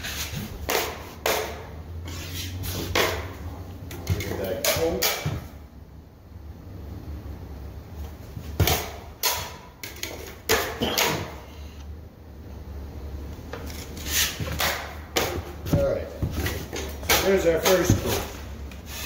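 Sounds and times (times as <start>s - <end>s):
taping knife scraping compound: 0.0s - 0.9s, 2.0s - 3.1s, 17.7s - 19.0s
steady low hum: 0.0s - 19.0s.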